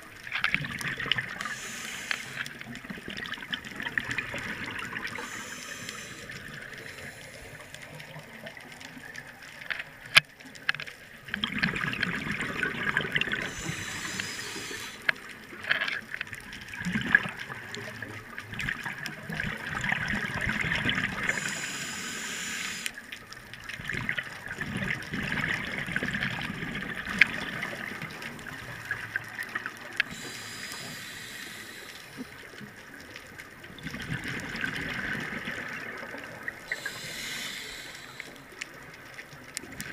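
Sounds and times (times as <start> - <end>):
regulator inhale hiss: 1.3 - 2.7, 4.4 - 8.0, 13.4 - 15.3, 21.2 - 23.0, 30.0 - 32.5, 36.7 - 38.6.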